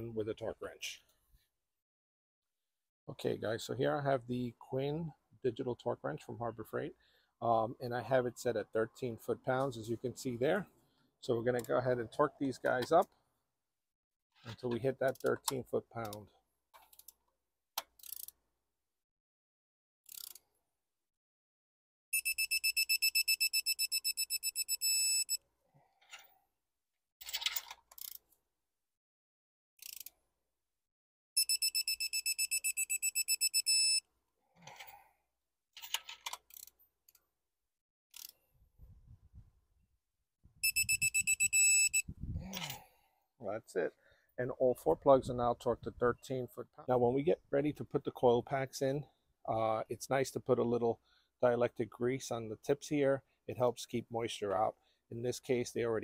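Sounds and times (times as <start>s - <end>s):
torque wrench beeping rapidly: 22.2s - 25.4s, 31.4s - 34.0s, 40.6s - 42.0s.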